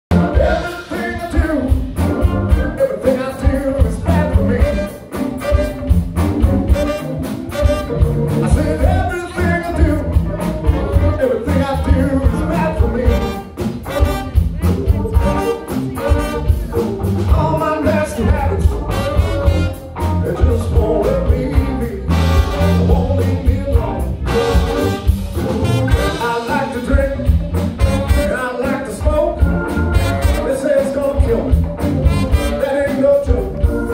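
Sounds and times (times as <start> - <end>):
drums: 0.0 - 33.9
man singing: 0.1 - 5.9, 6.7 - 33.9
electric guitar: 0.1 - 33.9
saxophone: 0.1 - 33.9
trumpet: 0.1 - 33.9.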